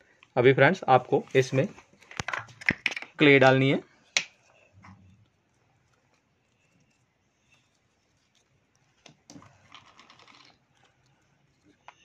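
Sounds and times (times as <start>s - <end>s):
soft handling rub: 4.4s - 9.3s.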